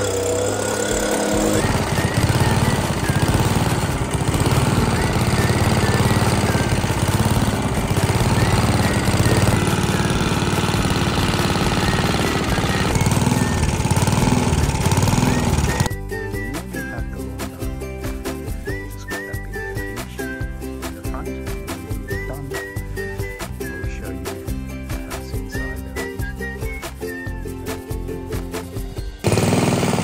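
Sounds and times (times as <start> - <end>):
lawn mower cutting grass: 0.0 - 17.0, 29.2 - 30.0.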